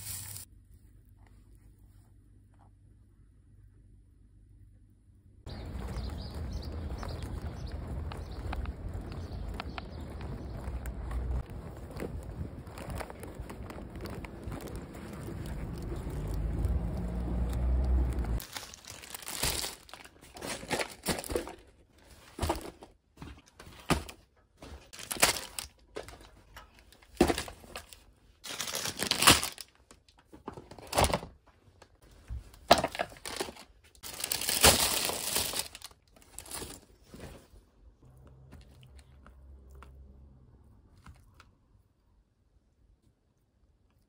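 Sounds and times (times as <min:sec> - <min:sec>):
wind rumbling on microphone: 0:05.5 - 0:18.4
plastic packaging crinkling: 0:05.5 - 0:21.7, 0:24.9 - 0:30.0, 0:32.6 - 0:37.1.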